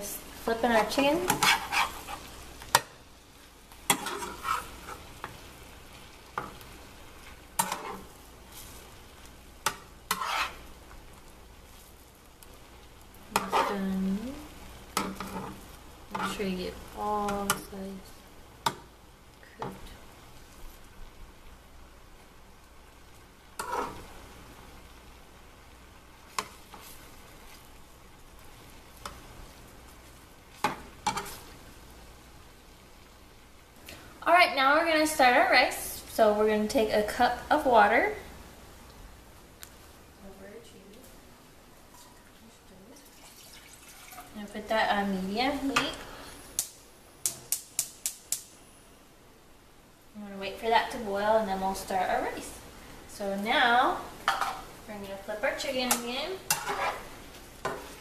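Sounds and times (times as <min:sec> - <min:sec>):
chicken sizzling in a frying pan: 0:00.0 - 0:58.0
spatula scraping and knocking pan: 0:00.8 - 0:02.9, 0:03.8 - 0:05.4, 0:07.2 - 0:08.8, 0:09.6 - 0:10.7, 0:13.3 - 0:13.8, 0:14.9 - 0:16.4, 0:23.6 - 0:24.1, 0:30.6 - 0:31.4, 0:54.2 - 0:54.7, 0:55.7 - 0:58.0.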